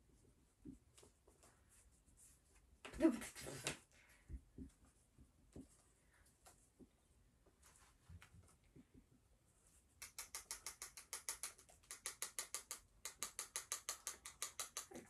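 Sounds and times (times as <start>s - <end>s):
marker tapping on whiteboard: 10.0s - 15.0s.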